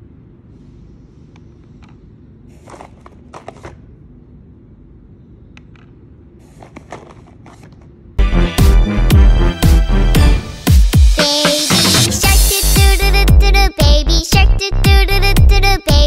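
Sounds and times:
electronic dance music: 8.2 - 16.0.

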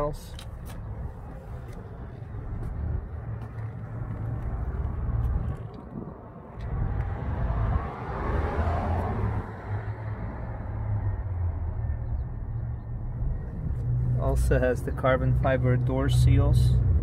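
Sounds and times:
low rumble of street traffic: 0.0 - 17.0
car passing close by: 3.0 - 12.1.

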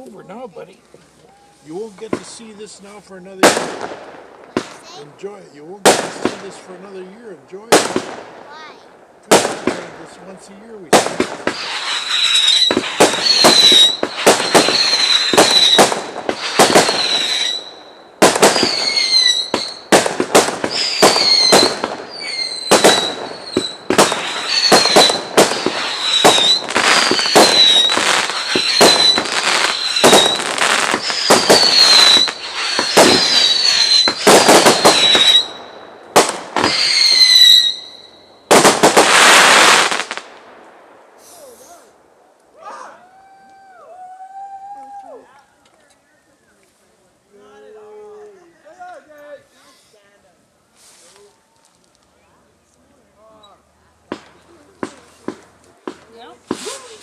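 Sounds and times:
whistling fireworks shots: 1.3 - 42.0
firework hissing rush: 10.9 - 40.3, 41.1 - 42.0.

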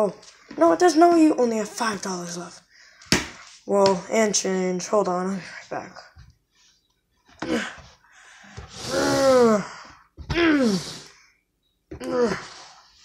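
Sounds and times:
person making wordless sounds: 0.0 - 2.5.

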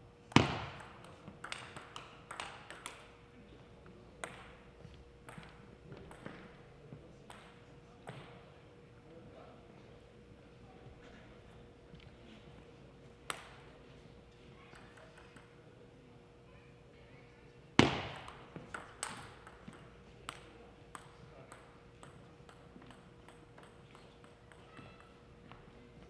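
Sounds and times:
table tennis paddle hits: 0.3 - 3.1, 5.2 - 6.4, 17.8 - 25.1
table tennis ball bouncing: 0.3 - 3.2, 4.2 - 6.6, 7.3 - 8.3, 13.3 - 13.6, 17.8 - 25.6.

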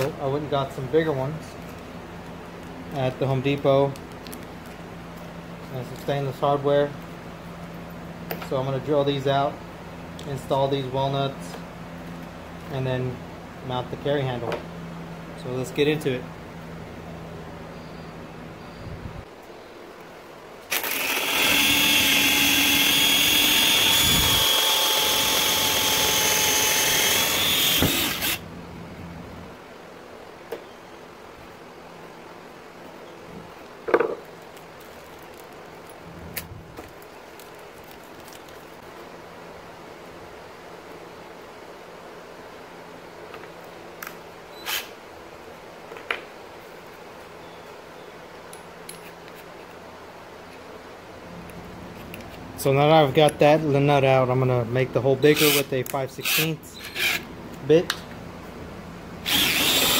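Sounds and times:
steady low hum: 0.0 - 59.9
cordless drill whining: 20.7 - 28.4, 56.2 - 57.2, 59.2 - 59.9.

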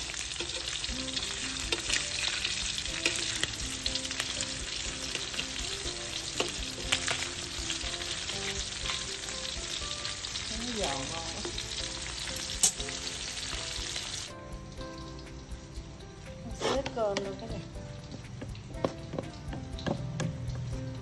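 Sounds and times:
fish sizzling in hot oil: 0.0 - 21.0
oil spitting: 11.4 - 14.3.

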